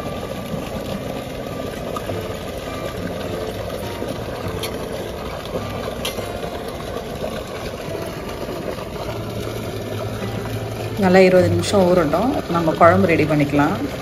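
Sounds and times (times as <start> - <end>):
water pump droning: 0.0 - 14.0
water rushing from pipe: 0.0 - 14.0.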